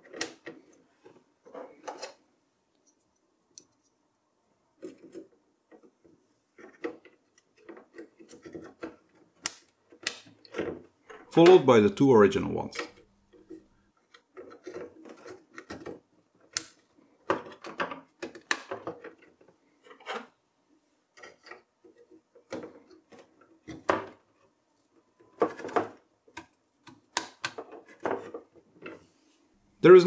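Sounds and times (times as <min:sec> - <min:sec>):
plastic clicks and knocks: 0:12.7 - 0:20.3, 0:25.3 - 0:29.0.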